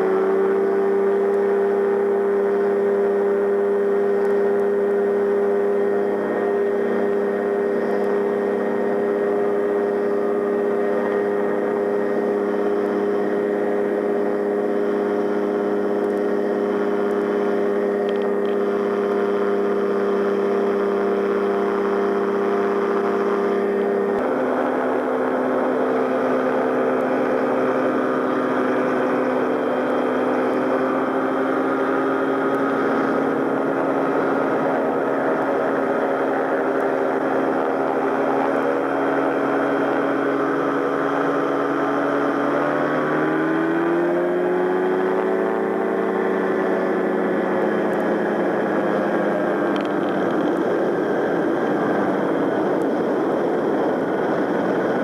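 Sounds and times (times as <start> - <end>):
aircraft engine at high power: 0.0 - 55.0
rotor noise: 0.0 - 55.0
wind noise: 23.6 - 55.0.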